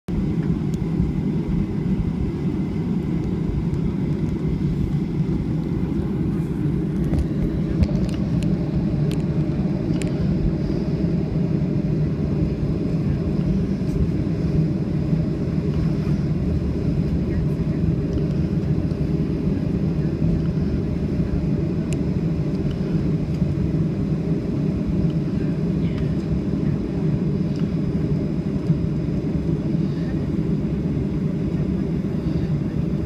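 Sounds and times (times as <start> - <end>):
airliner cabin rumble: 0.1 - 33.0
faint jet engine whine: 0.1 - 33.0.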